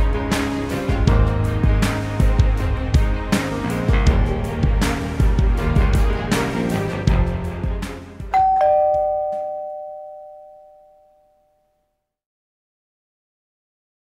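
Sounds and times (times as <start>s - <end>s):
intro music: 0.0s - 9.6s
two-tone doorbell chime: 8.3s - 11.8s.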